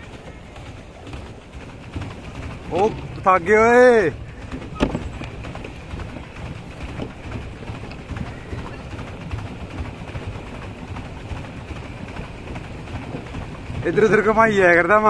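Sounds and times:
paddle wheels churning water: 0.0s - 15.0s
faint irregular knocks: 4.4s - 9.1s.

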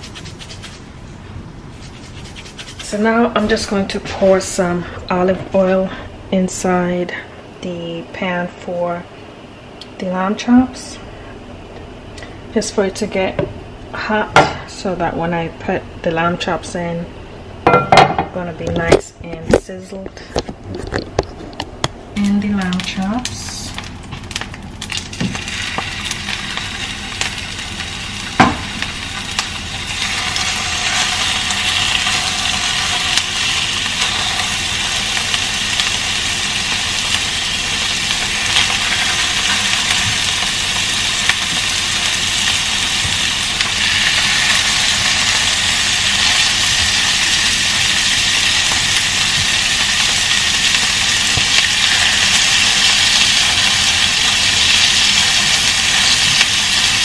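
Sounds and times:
meat sizzling in frying pan: 22.6s - 57.0s.

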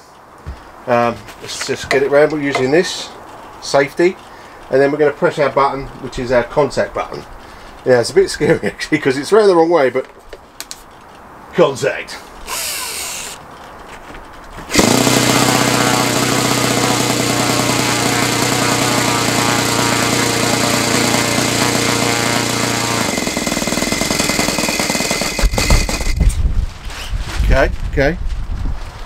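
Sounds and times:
electric starter whirring: 12.4s - 13.4s, 14.7s - 26.4s.

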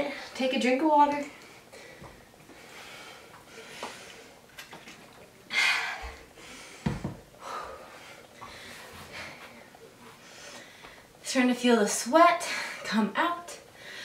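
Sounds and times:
woman breathing hard: 5.5s - 9.6s.

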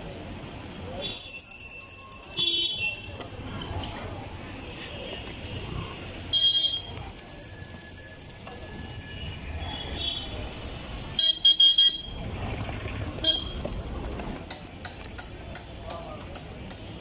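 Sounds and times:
low traffic rumble: 0.0s - 17.0s
vehicle horns honking: 2.4s - 3.0s, 6.3s - 7.0s, 9.7s - 10.4s, 11.1s - 12.2s, 13.2s - 13.6s.

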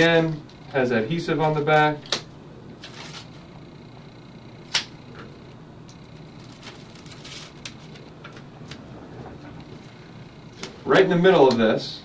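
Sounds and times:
paper and foam crinkling: 2.8s - 3.4s, 6.4s - 8.0s.

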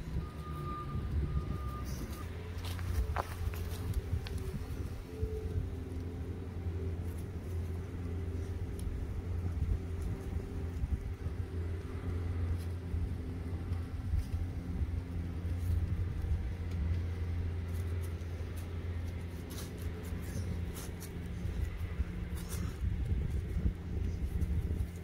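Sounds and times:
low mechanical hum and rumble: 0.0s - 25.0s.

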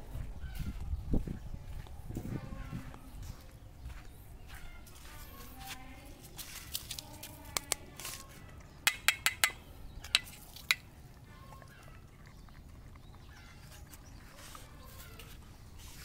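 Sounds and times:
spoon clinking on metal bowl: 8.9s - 10.9s.

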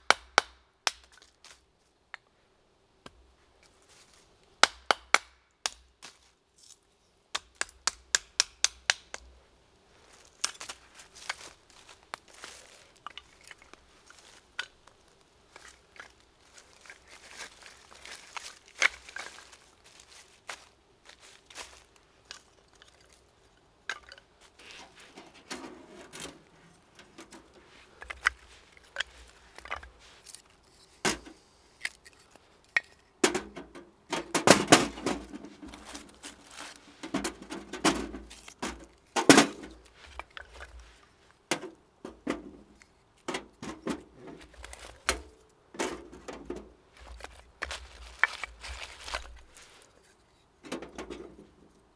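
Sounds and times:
sticks snapping: 7.3s - 9.3s
rustling leaf litter: 9.9s - 23.5s, 24.4s - 32.6s, 34.6s - 41.4s, 46.9s - 50.2s.

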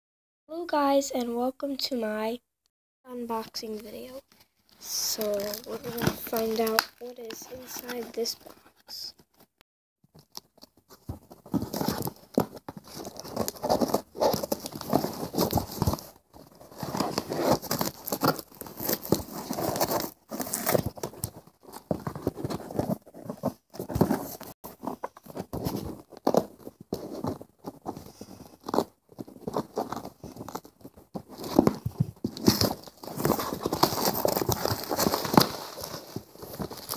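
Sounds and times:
packing material rustling: 4.3s - 8.8s, 10.2s - 36.9s
cardboard box cut and torn: 11.5s - 27.4s, 28.2s - 36.9s.

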